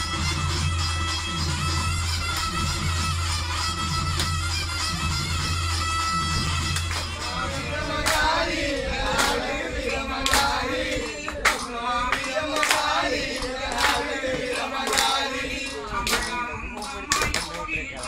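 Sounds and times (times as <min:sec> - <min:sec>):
percussion beat: 0:00.0 - 0:18.0
voices singing: 0:07.1 - 0:18.0.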